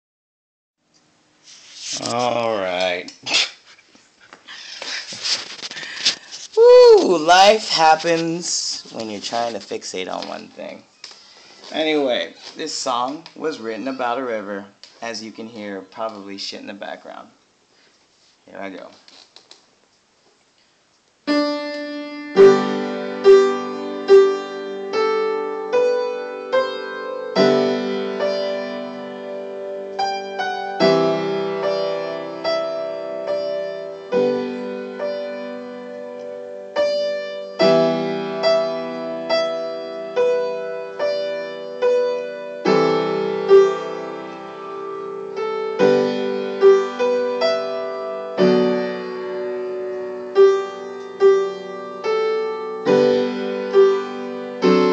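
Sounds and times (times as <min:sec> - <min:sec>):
slow solo piano chords: 0:21.3 - 0:54.9.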